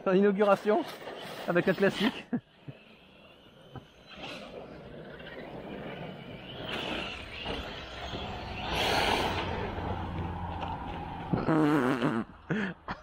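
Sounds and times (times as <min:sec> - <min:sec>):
rc truck motor and tyre noise: 0:00.0 - 0:12.7
person laughing: 0:11.3 - 0:13.0.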